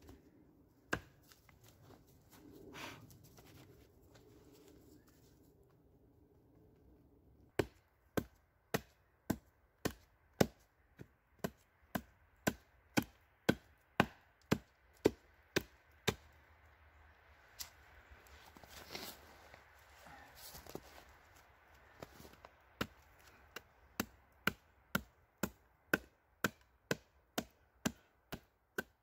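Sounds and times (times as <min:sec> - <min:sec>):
hatchet chopping wood: 0:00.9 - 0:01.3, 0:07.5 - 0:16.3, 0:22.8 - 0:29.0.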